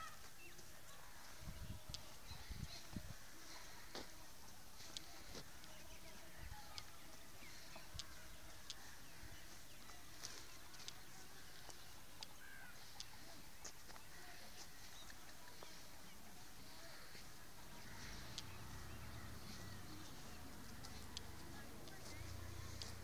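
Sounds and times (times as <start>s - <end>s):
faint bird chirps: 4.8s - 21.3s.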